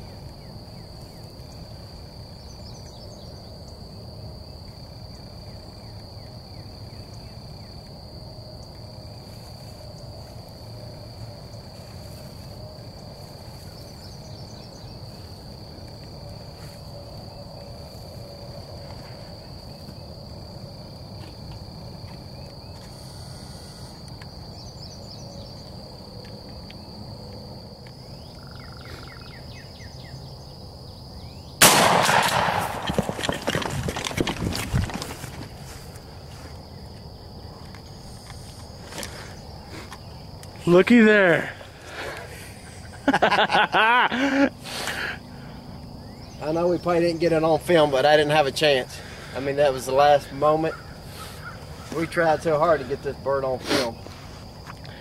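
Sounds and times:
shotgun blast: 31.6s - 33.3s
low rustling: 31.8s - 36.6s
bird calls: 50.7s - 52.2s.

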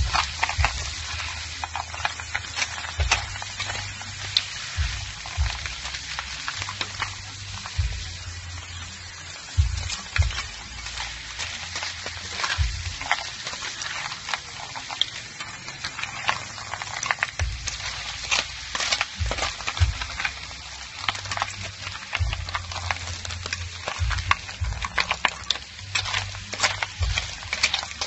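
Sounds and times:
snails sizzling in a pan: 0.0s - 28.0s
shells clicking and cracking: 23.8s - 28.0s.

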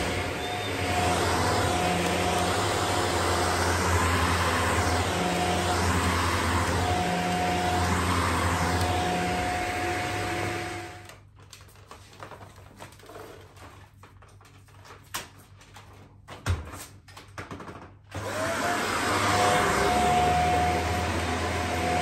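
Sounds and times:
vacuum cleaner motor whine: 0.0s - 11.2s, 18.1s - 22.0s.

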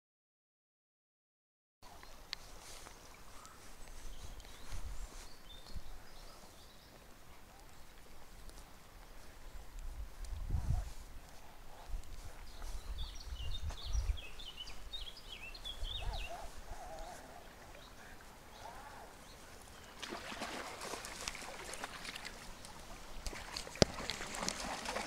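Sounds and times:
footsteps on wet gravel: 2.1s - 25.0s
wind rumble on microphone: 9.5s - 17.4s.

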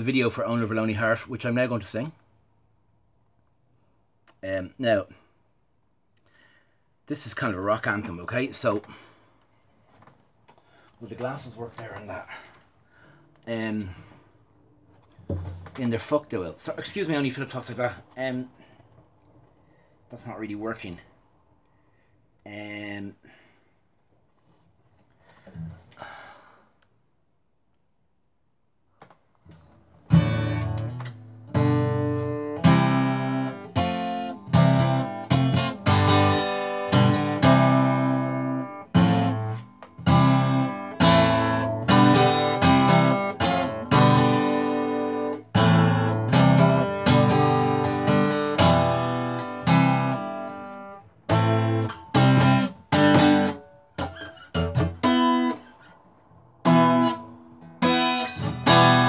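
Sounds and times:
acoustic guitar strumming chords: 30.0s - 55.7s, 56.6s - 59.0s.

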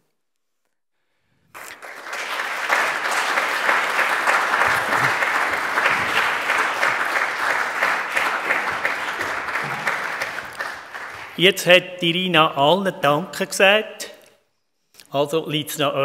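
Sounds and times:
audience applause: 1.5s - 11.6s.

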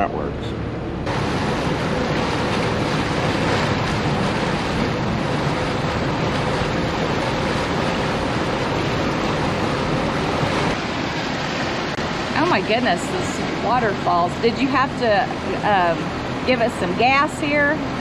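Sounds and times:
boat engines running: 0.0s - 18.0s
water rushing in boat wake: 0.0s - 18.0s.

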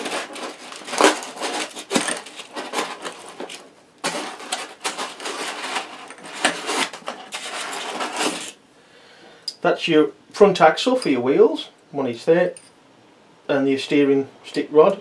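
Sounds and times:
plastic film rustling and crackling: 0.0s - 8.6s.

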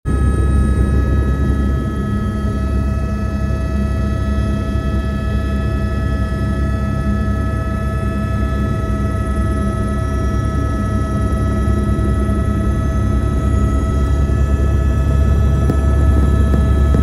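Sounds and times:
helicopter engine and rotor: 0.1s - 17.0s.

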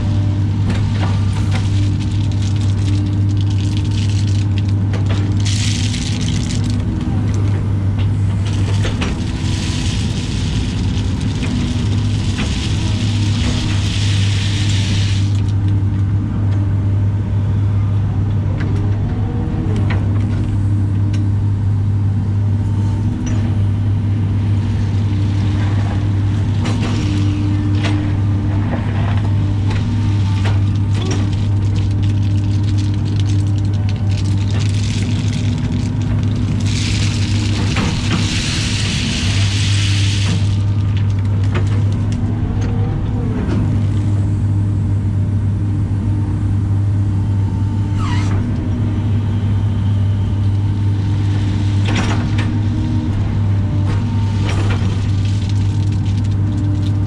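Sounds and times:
hydraulics whining: 0.0s - 16.6s
excavator diesel engine running: 0.0s - 57.0s
rock rattling in bucket: 0.7s - 7.5s, 8.4s - 15.7s, 29.2s - 42.2s, 54.6s - 57.0s.

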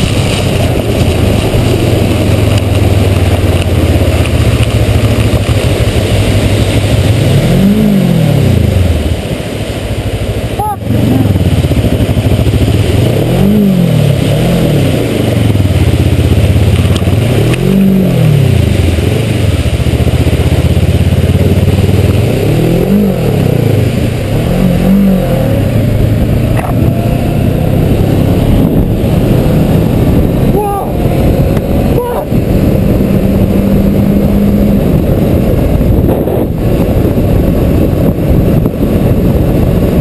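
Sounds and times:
tyre spray through water: 0.0s - 31.4s
motorcycle engine running: 0.0s - 40.0s
wind rushing: 0.0s - 40.0s.

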